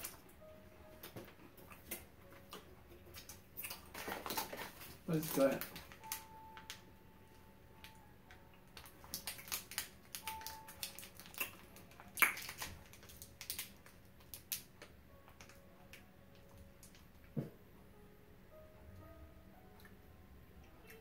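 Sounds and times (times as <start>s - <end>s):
plastic wrapper crackling: 3.2s - 6.9s, 8.7s - 17.0s.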